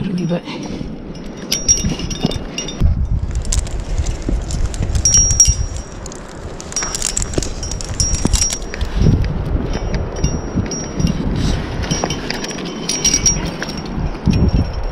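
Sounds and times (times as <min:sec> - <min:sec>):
metal climbing gear clinking: 0:00.0 - 0:14.9
wind rumble on microphone: 0:00.0 - 0:14.9.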